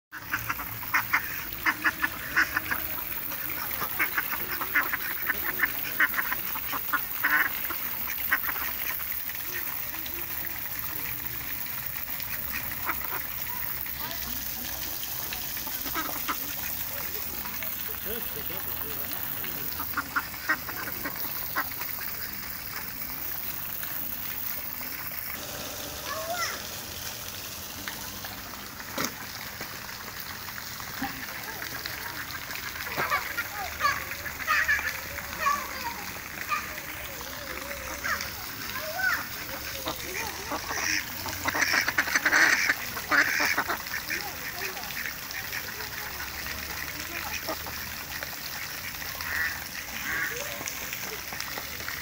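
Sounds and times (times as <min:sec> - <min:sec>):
ducks quacking: 0:00.1 - 0:11.2, 0:11.9 - 0:23.3, 0:30.9 - 0:36.8, 0:39.1 - 0:47.8, 0:48.4 - 0:50.8.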